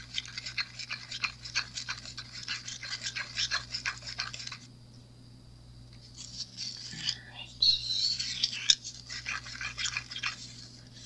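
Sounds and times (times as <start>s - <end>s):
stir stick scraping a paper cup: 0.0s - 4.7s, 6.0s - 7.2s, 8.0s - 11.0s.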